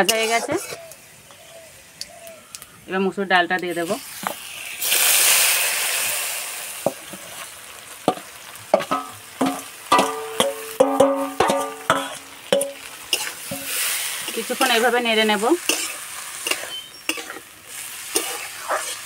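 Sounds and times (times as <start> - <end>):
metal spatula scraping and knocking: 0.0 - 0.9, 8.8 - 14.8, 15.6 - 17.4, 18.1 - 19.0
lentils sizzling in hot oil: 0.0 - 19.0
steel bowl ringing: 8.9 - 12.9.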